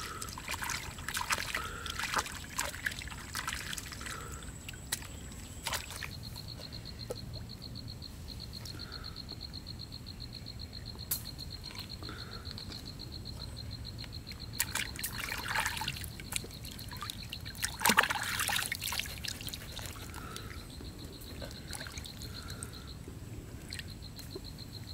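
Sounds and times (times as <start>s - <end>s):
water splashing and trickling: 0.0s - 6.3s, 14.5s - 22.9s.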